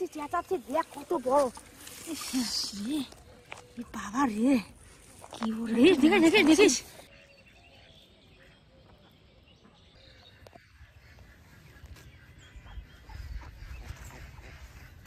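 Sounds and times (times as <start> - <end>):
ducks quacking: 10.2 - 15.0.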